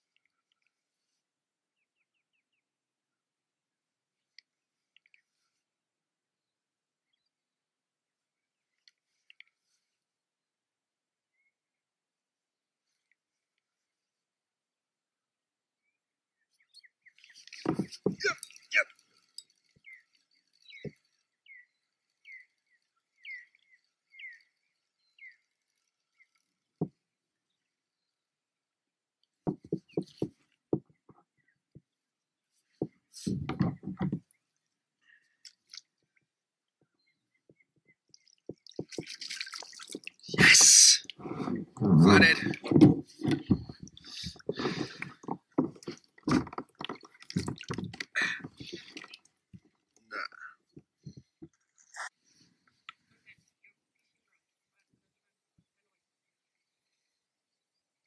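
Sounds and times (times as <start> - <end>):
water splashing and dripping: 17.2 - 21.2, 38.0 - 41.2, 42.3 - 49.8
bird chirping: 19.4 - 26.6.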